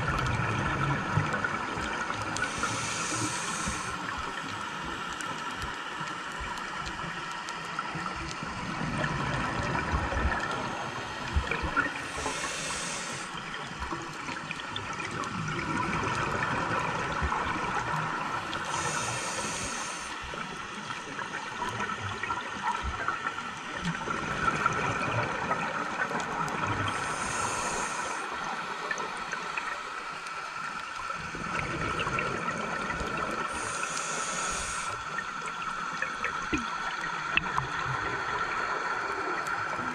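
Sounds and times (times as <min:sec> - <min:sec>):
exhaled air bubbling: 0:00.0 - 0:39.9
regulator inhale hiss: 0:02.2 - 0:04.6, 0:12.0 - 0:13.5, 0:18.4 - 0:20.5, 0:26.8 - 0:29.0, 0:33.4 - 0:35.6.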